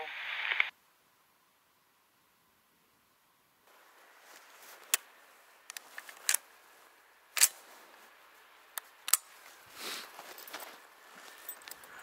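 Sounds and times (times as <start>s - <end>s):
footsteps crunching in snow: 3.7s - 8.4s, 9.2s - 11.9s.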